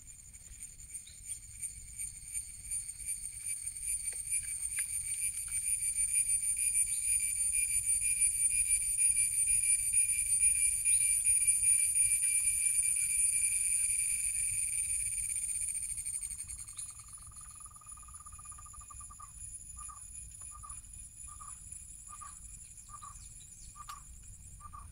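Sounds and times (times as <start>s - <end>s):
insects buzzing: 0.0s - 24.9s.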